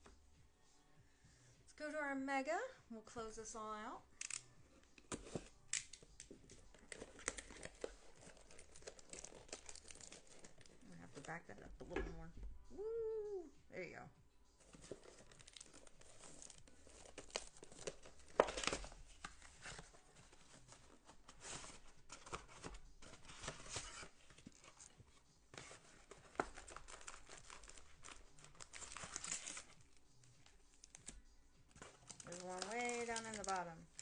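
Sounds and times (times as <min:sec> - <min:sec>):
plastic wrap tearing and crinkling: 0:05.2 - 0:11.4, 0:14.7 - 0:25.0, 0:25.6 - 0:34.0.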